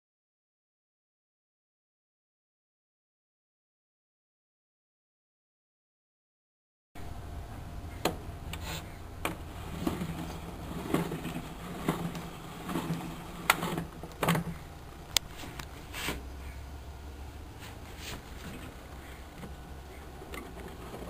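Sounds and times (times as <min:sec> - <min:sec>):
steady low hum: 0:07.0 - 0:21.0
record player clicks and knocks: 0:09.2 - 0:15.7.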